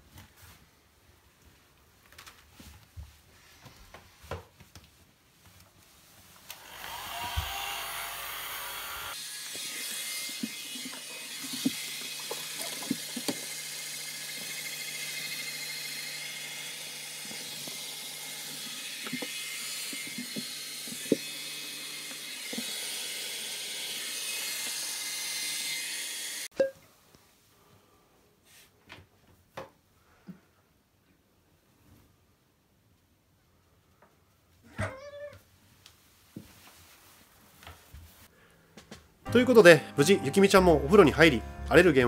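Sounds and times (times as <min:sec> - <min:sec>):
hair dryer blowing air: 0:06.5 - 0:26.5.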